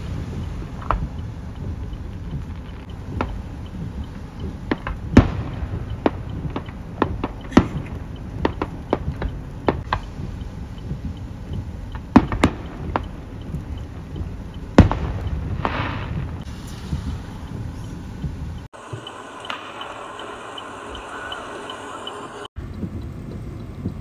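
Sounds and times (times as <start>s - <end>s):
crackling hiss: 0.0s - 24.0s
firework shells bursting: 4.6s - 10.1s, 18.8s - 22.2s.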